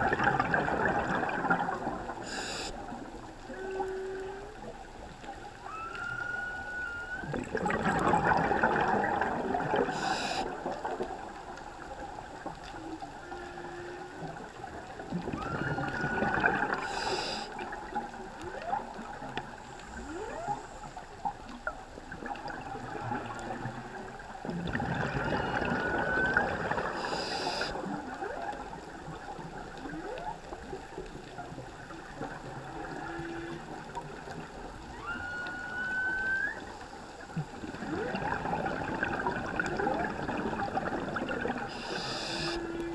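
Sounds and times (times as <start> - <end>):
scuba exhalation bubbles: 0.0 - 2.4, 7.2 - 11.3, 14.2 - 18.1, 22.2 - 28.6, 37.2 - 42.9
low whale moan: 3.4 - 10.2, 12.3 - 20.9, 22.2 - 29.2, 29.8 - 42.9
whale song whoops underwater: 3.5 - 4.7, 5.4 - 10.3, 12.8 - 19.3, 20.0 - 20.8, 24.7 - 28.8, 29.8 - 30.8, 32.1 - 42.9.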